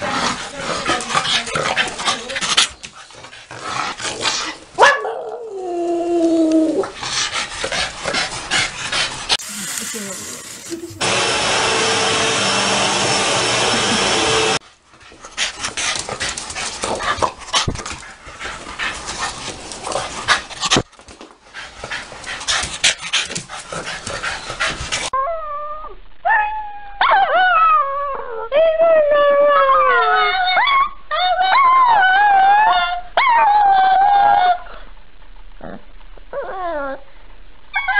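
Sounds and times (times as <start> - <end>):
dog howling: 25.2 - 34.8.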